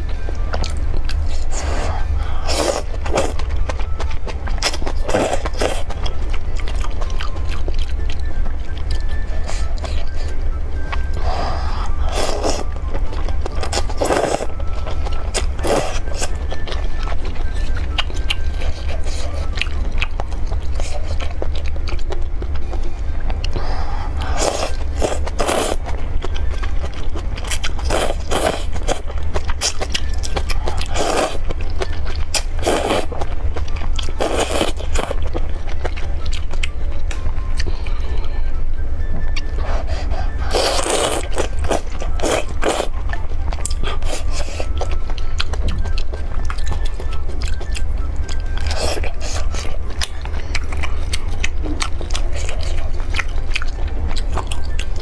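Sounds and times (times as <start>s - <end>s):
chewing: 0.0s - 38.3s, 39.1s - 55.0s
person slurping noodles: 1.7s - 3.3s, 24.2s - 25.8s, 39.8s - 42.9s.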